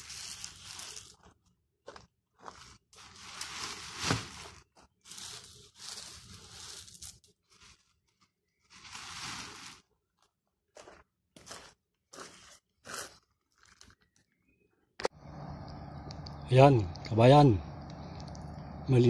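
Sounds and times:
weeds rustling and tearing: 0.0 - 1.2, 2.6 - 9.9.

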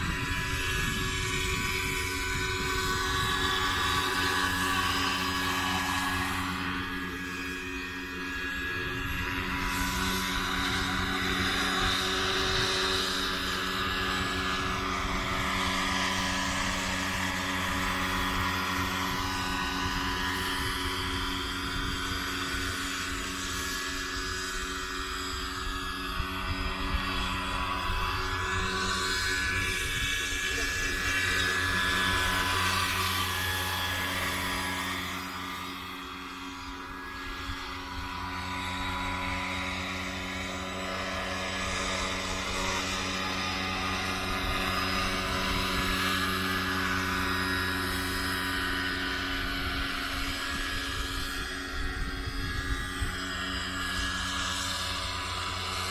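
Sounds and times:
high motor whine: 0.0 - 55.9
rotor blades whooshing: 0.0 - 55.9.

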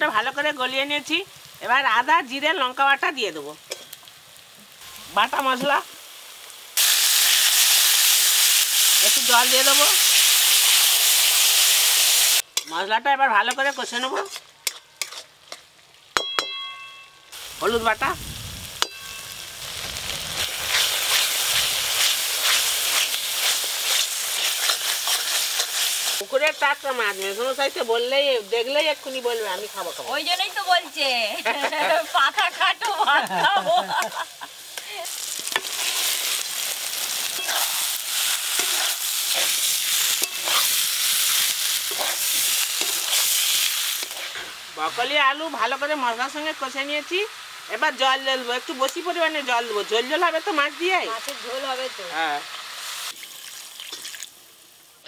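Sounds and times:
spice paste sizzling: 0.0 - 55.0
metal spatula scraping pan: 13.5 - 15.7, 37.3 - 37.8, 38.5 - 40.8, 41.8 - 43.4
ringing metal clink: 16.2 - 17.3, 18.8 - 19.4.

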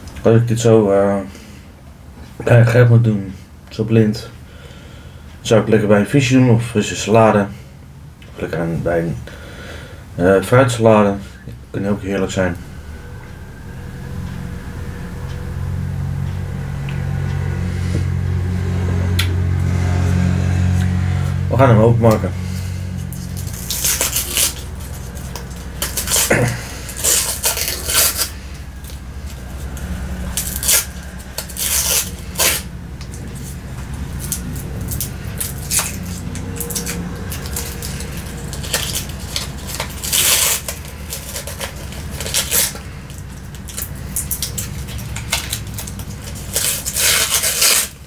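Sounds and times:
paper crinkling and tearing: 22.4 - 48.0.

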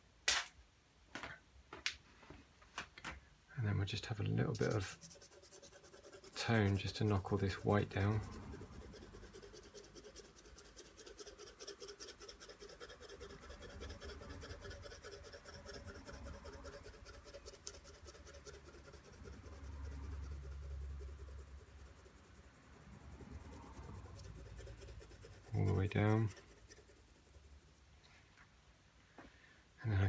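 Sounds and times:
pencil scratching on paper: 4.0 - 27.8.

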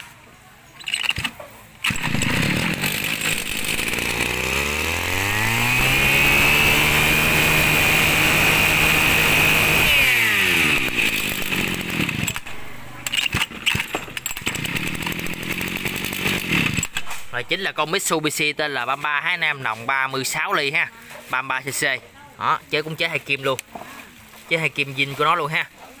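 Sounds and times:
brushcutter engine revving and idling: 0.9 - 18.1.

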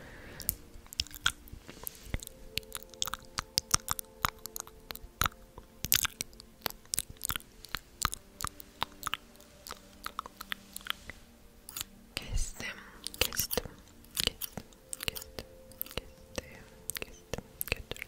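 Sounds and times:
wet mouth clicks and smacks: 0.4 - 11.0, 13.1 - 18.0.

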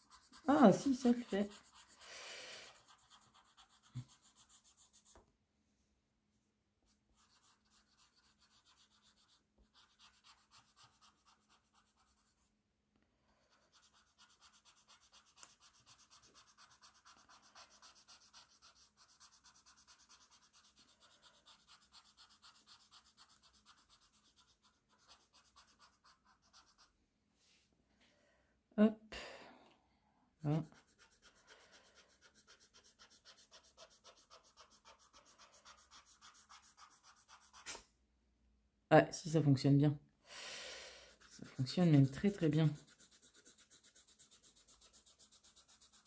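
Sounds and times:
blending stump rubbing on paper: 41.1 - 46.0.

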